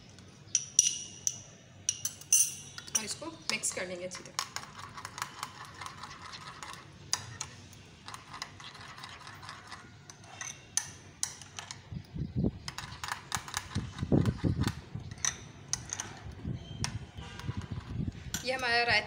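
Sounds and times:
spoon clicking against glass bowl: 0.5s - 3.1s.

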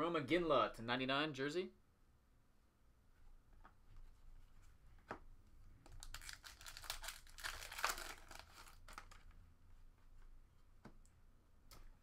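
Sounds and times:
foil wrapper ripping and crackling: 6.0s - 9.2s.

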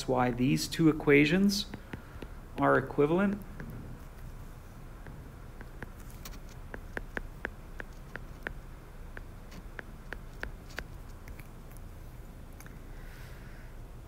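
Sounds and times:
stylus tapping on glass screen: 1.7s - 2.7s, 5.0s - 10.9s.

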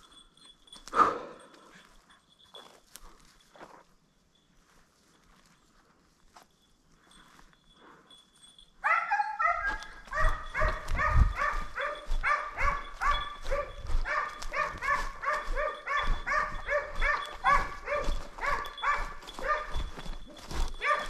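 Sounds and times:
hound baying: 8.8s - 21.0s.

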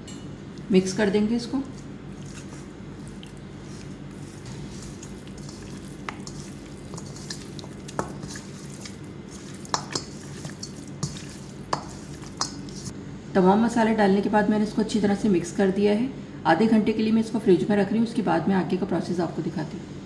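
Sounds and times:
steady low hum: 0.0s - 13.5s
hands mixing wet chicken wings: 0.5s - 12.9s.

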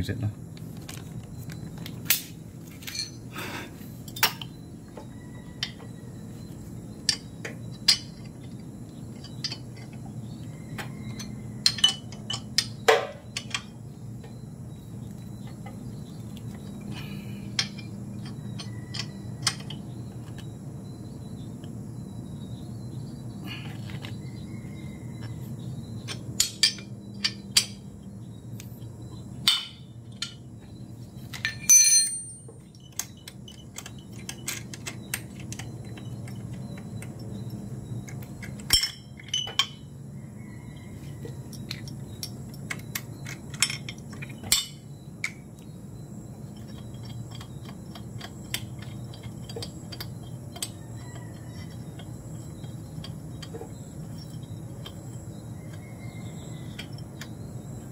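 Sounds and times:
metallic clicks of engine parts: 4.0s - 6.0s, 6.9s - 14.4s, 15.0s - 20.6s, 25.1s - 39.9s, 41.2s - 45.7s, 46.4s - 57.9s.

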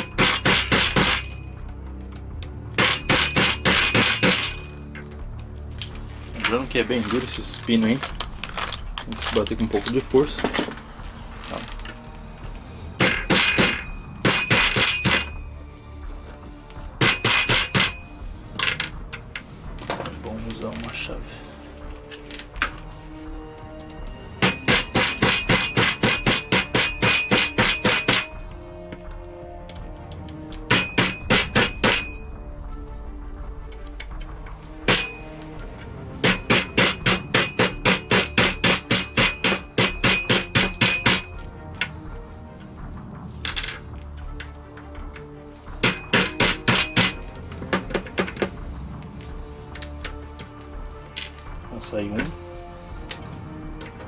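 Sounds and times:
mallet striking metal punch: 0.0s - 1.6s, 2.8s - 5.0s, 13.0s - 15.5s, 17.0s - 18.3s, 24.4s - 28.6s, 30.7s - 32.4s, 34.9s - 35.6s, 36.2s - 41.5s, 45.8s - 48.5s
rubber mallet tapping metal punch: 30.7s - 32.2s, 36.2s - 41.4s.

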